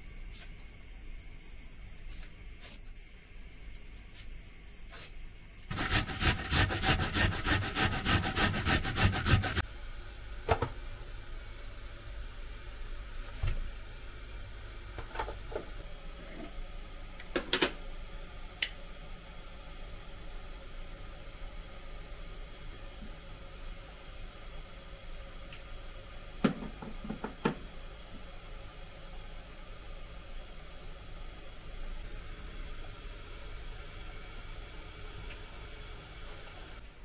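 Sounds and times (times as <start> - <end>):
onion being grated: 5.7 - 9.6.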